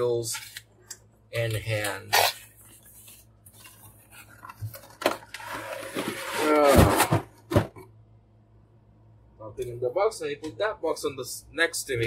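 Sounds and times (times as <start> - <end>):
cardboard lid scraping and squealing: 5.3 - 7.4.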